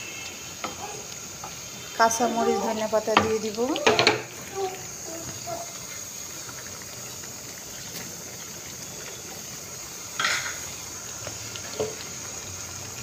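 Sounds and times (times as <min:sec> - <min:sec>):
curry bubbling in a pan: 0:00.0 - 0:13.0
knock against a pan: 0:03.1 - 0:04.3.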